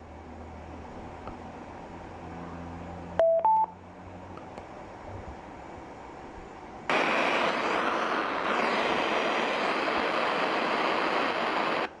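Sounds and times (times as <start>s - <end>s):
radio static hissing: 6.9s - 12.0s.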